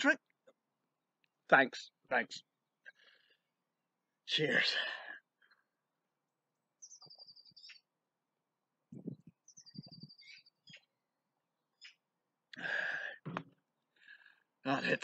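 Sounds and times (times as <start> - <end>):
small bird singing: 6.6 - 8.1, 8.9 - 12.2.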